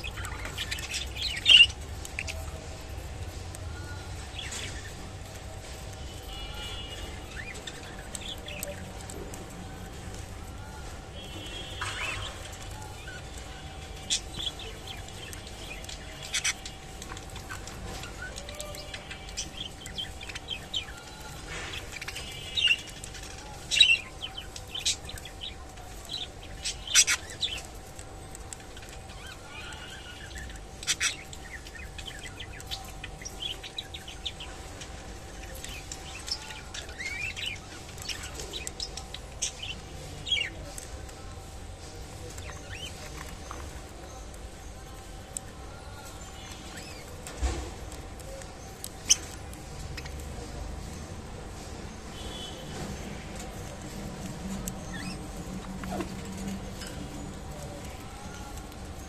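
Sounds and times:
budgerigars chirping: 11.8s - 16.8s, 26.2s - 27.7s.

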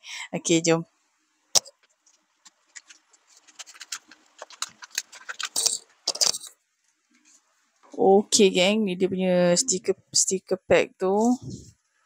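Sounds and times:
packaging crackling and rustling: 1.7s - 6.5s.

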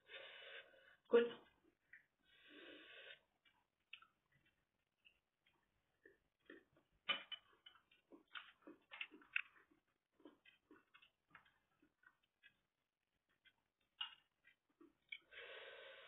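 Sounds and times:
cutlery clicking and tapping: 7.0s - 9.6s.

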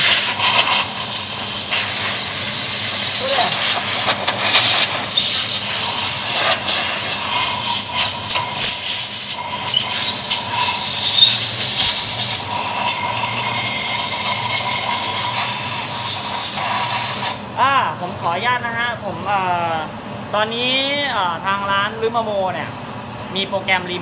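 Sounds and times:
compressed air blow gun hissing: 0.0s - 17.4s.

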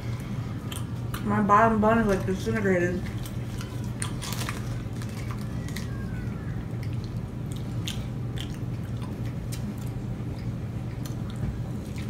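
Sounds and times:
steady low hum: 0.0s - 12.0s
chewing: 3.0s - 6.0s, 6.6s - 12.0s.

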